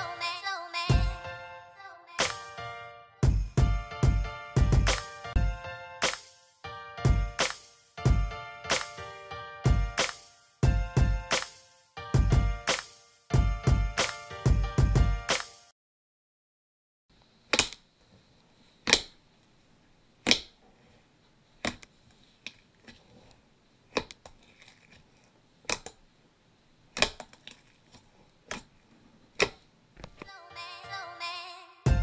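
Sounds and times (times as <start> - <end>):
music: 0.0 - 15.7, 30.3 - 32.0
slime popping and clicking: 26.9 - 27.5.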